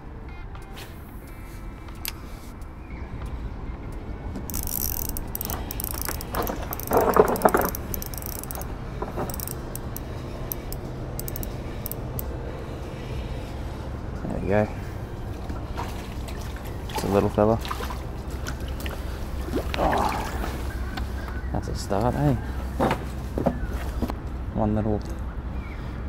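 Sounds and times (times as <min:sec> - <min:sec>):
fishing reel gears clicking: 0:04.5 - 0:12.3.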